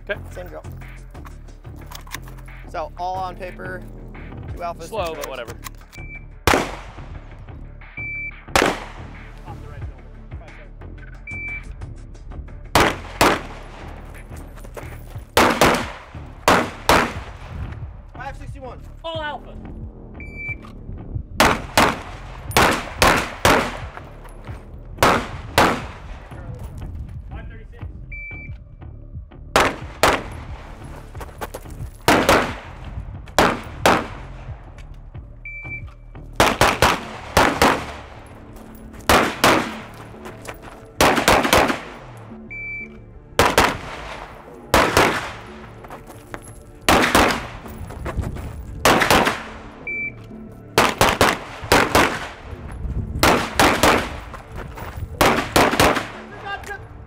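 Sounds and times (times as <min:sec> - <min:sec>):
pistol shots: 0:06.4 - 0:07.1, 0:08.5 - 0:09.2, 0:12.8 - 0:14.0, 0:15.4 - 0:17.6, 0:21.4 - 0:24.0, 0:25.0 - 0:26.1, 0:29.6 - 0:30.7, 0:32.0 - 0:34.4, 0:36.4 - 0:38.4, 0:39.0 - 0:40.1, 0:41.0 - 0:42.2, 0:43.4 - 0:45.7, 0:46.9 - 0:47.7, 0:48.8 - 0:49.8, 0:50.7 - 0:52.5, 0:53.2 - 0:54.4, 0:55.2 - 0:56.3
shot timer beep: 0:35.5 - 0:35.9, 0:42.5 - 0:43.0, 0:49.9 - 0:50.2.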